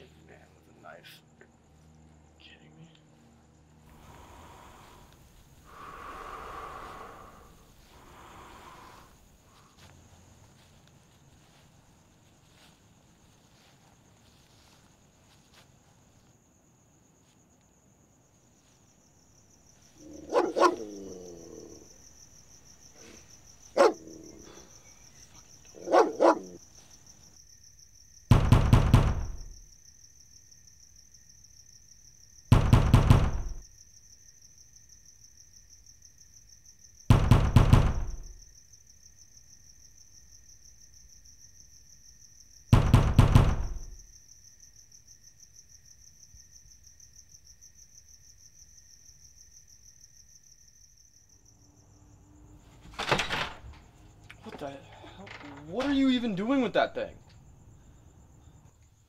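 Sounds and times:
crickets chirring: 0.0s - 59.0s
dog barking: 20.1s - 21.1s, 23.7s - 24.4s, 25.7s - 26.6s
pounding on a door: 28.3s - 29.6s, 32.5s - 33.6s, 37.1s - 38.4s, 42.7s - 44.0s.

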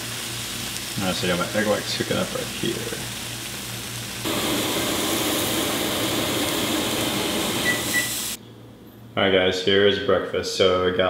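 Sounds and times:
food sizzling in pans: 0.0s - 8.4s.

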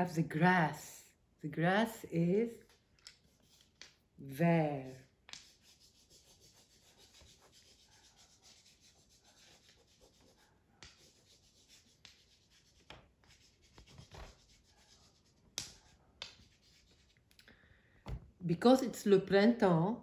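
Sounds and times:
drawing tool scratching paper: 3.1s - 4.0s, 4.8s - 17.2s.

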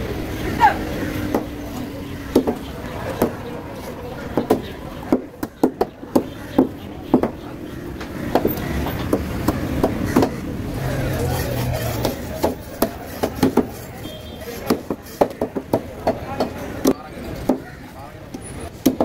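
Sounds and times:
knife chopping fish on wood block: 12.0s - 13.9s.

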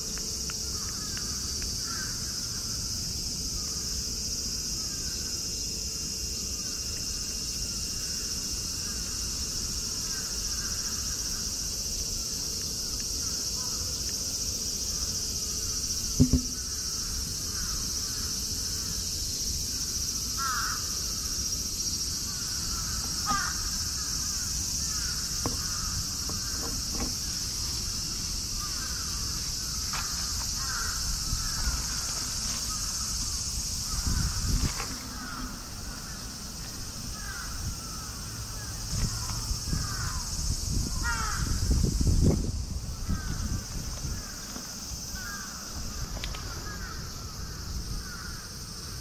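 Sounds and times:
high insect drone: 0.0s - 49.0s
crows cawing: 0.8s - 2.7s, 17.5s - 18.3s, 20.4s - 21.3s, 22.3s - 26.8s, 28.6s - 32.1s, 33.8s - 36.3s, 37.1s - 40.3s, 40.9s - 41.6s, 43.0s - 44.5s, 45.1s - 48.6s.

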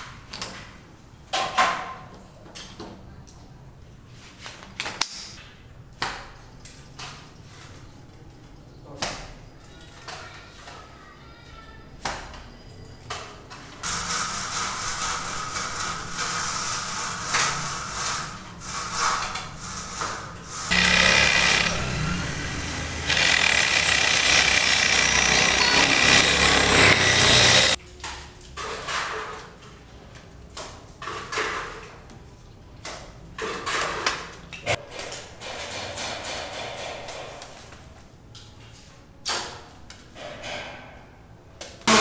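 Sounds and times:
clattering work noise: 12.2s - 27.8s, 33.4s - 37.8s, 40.1s - 41.0s
power tool on steel: 13.8s - 27.8s.

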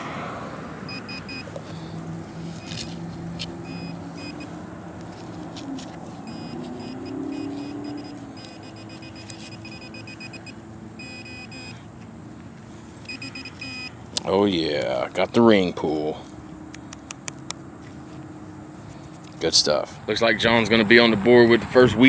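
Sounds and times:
distant engine drone: 0.0s - 22.0s
metal detector pinpointer beeping: 0.9s - 1.6s, 2.5s - 4.6s, 6.2s - 11.8s, 13.0s - 14.0s.

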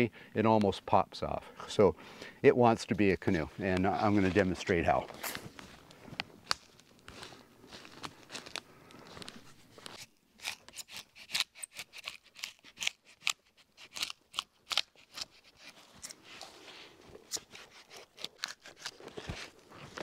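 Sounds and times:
bark crackling and tearing: 9.9s - 16.2s, 17.2s - 20.0s.

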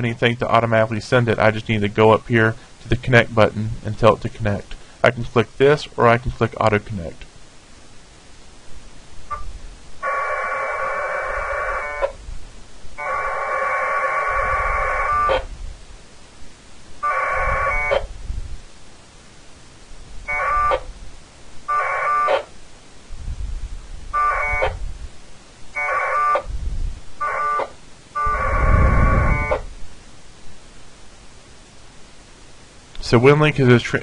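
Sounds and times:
warbling two-tone modem bursts: 9.3s - 12.2s, 13.0s - 15.5s, 17.0s - 18.1s, 20.2s - 20.9s, 21.6s - 22.6s, 24.2s - 24.8s, 25.7s - 26.5s, 27.2s - 29.7s.

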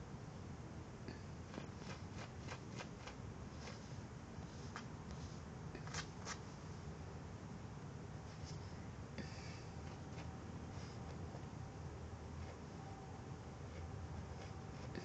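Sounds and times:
dog sniffing: 1.5s - 6.0s.

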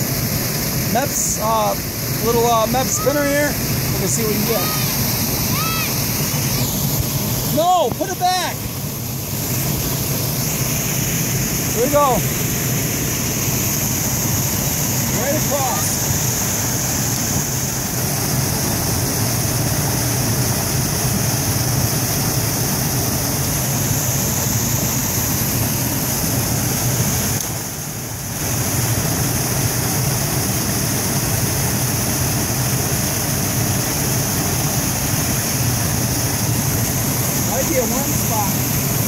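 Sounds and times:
water rushing over a dam: 0.0s - 39.0s.

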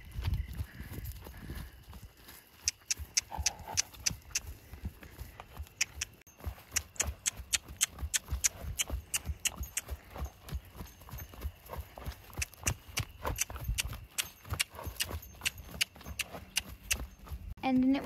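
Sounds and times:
horse hoofbeats on grass: 0.0s - 18.0s.

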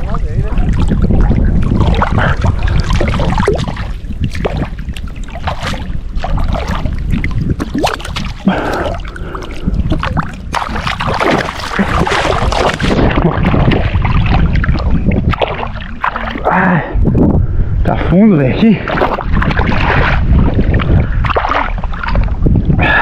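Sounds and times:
flowing river water: 0.0s - 17.2s, 18.0s - 23.0s
wind rumbling on microphone: 0.0s - 23.0s
small clicks and splashes: 0.6s - 16.5s.

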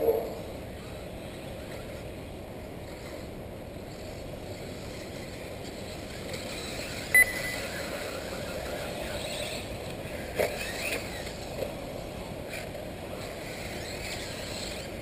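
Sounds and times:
rc car motor whine: 2.8s - 15.0s
short high beep: 7.1s - 7.9s.

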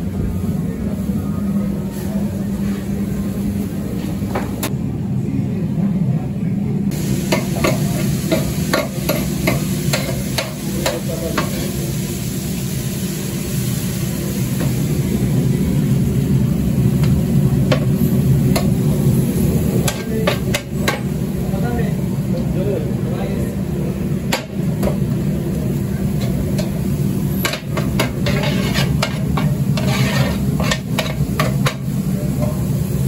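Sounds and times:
meat frying in oil: 6.9s - 21.4s, 24.1s - 33.0s
metal spoon scraping a pan: 27.4s - 31.8s.

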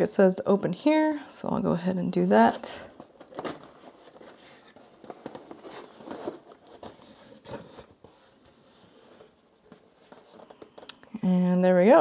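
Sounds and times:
cardboard rustling and scraping: 2.5s - 10.9s.

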